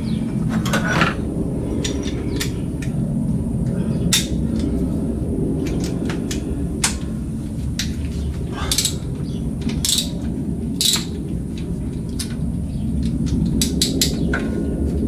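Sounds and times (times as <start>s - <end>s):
steady low rumble: 0.0s - 15.0s
hand tools clicking on metal: 8.6s - 12.4s, 13.0s - 14.5s.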